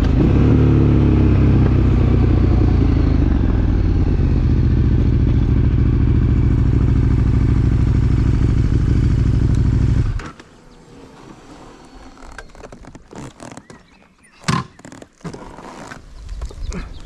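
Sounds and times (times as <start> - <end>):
motorcycle engine running: 0.0 - 10.2.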